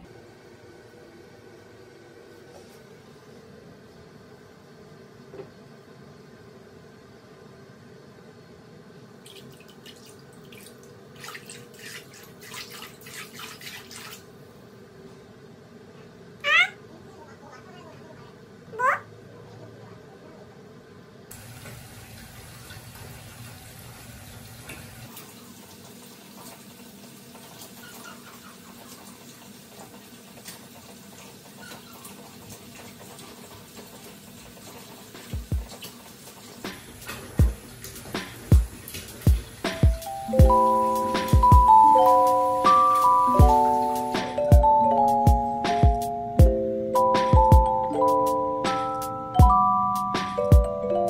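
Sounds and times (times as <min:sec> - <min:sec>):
faint steady hum: 0:00.0 - 0:13.0, 0:36.5 - 0:51.0
hand splashing bathwater: 0:09.2 - 0:14.3.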